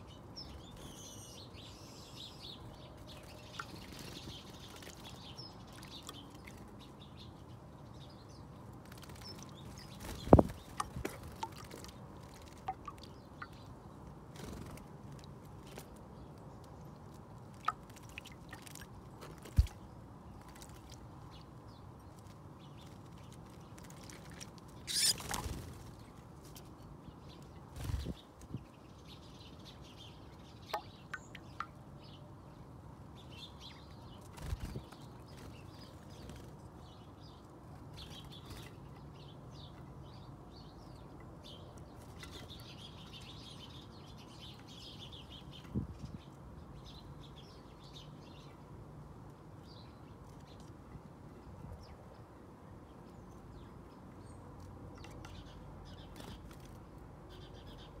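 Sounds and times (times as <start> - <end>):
birds splashing in water: 3.5 - 6.8, 8.8 - 13.7, 17.4 - 21.5, 23.1 - 25.8
faint bird chirping: 24.8 - 48.7
wingbeats flurry: 24.9 - 25.8.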